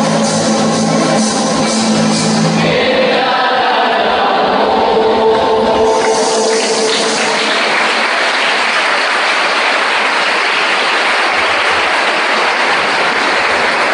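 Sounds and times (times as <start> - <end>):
audience applause: 5.9 - 13.9.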